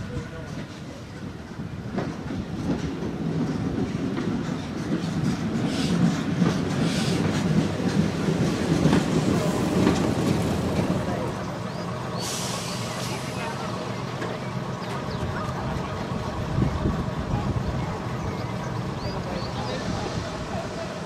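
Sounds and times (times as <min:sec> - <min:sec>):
train wheels clicking over rail joints: 0:00.1 - 0:15.9.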